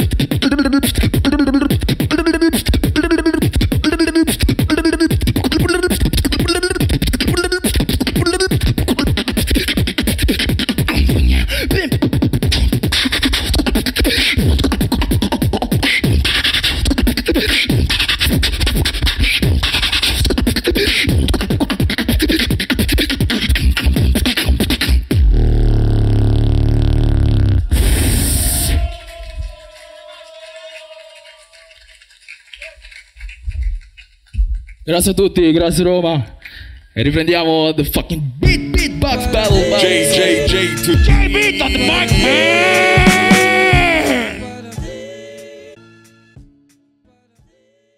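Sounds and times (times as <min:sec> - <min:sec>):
person beatboxing into a microphone: 0:00.0 - 0:27.0, 0:30.5 - 0:45.0
low vocal growl: 0:42.1 - 0:44.6.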